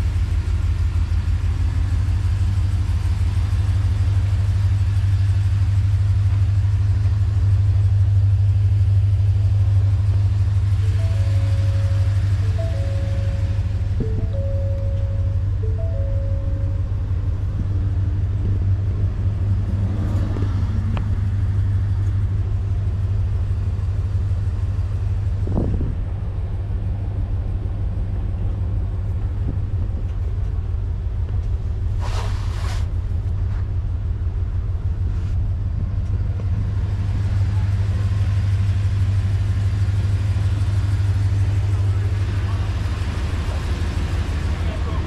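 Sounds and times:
engine idling rumble: 0.0s - 45.0s
burst of hiss: 32.0s - 32.9s.

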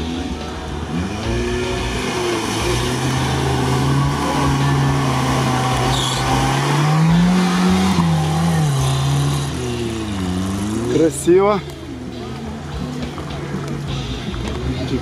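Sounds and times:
off-road engine revving: 0.0s - 15.0s.

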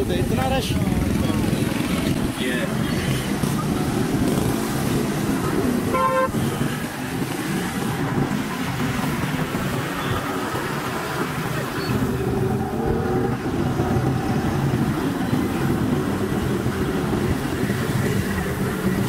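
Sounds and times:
traffic on a wet road: 0.0s - 19.0s
short horn toot: 5.9s - 6.4s.

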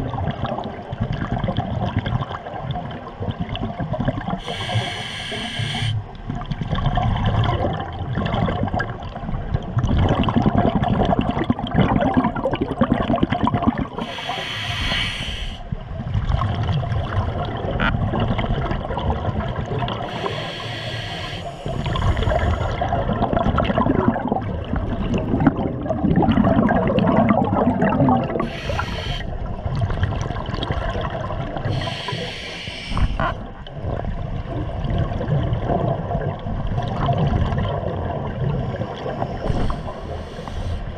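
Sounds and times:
exhaled air bubbling underwater: 0.0s - 40.9s
regulator hissing inhalations: 4.4s - 6.0s, 14.0s - 15.6s, 20.0s - 22.8s, 28.4s - 29.4s, 31.7s - 33.3s, 39.3s - 40.9s.

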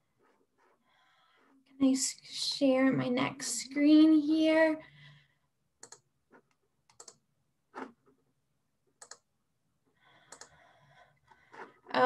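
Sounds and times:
faint mouse clicks: 5.8s - 7.2s, 9.0s - 9.3s, 10.3s - 10.6s.

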